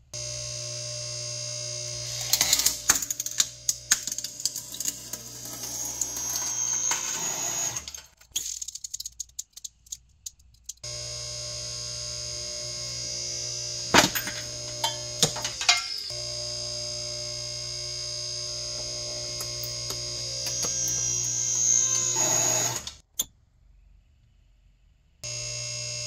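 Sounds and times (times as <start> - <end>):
hydraulic pump hum: 10.8 - 23.0.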